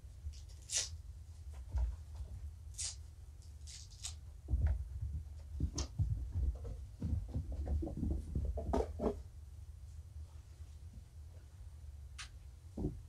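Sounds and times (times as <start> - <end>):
kittens scampering and scuffling: 3.5 - 9.2.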